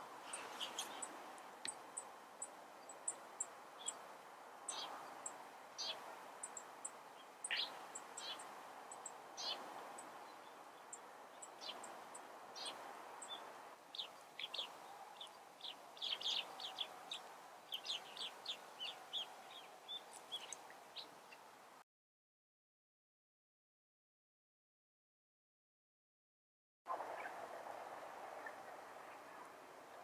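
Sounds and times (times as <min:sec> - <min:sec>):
faint background noise: 0:00.0 - 0:21.8, 0:26.9 - 0:30.0
songbirds chirping: 0:00.0 - 0:21.8.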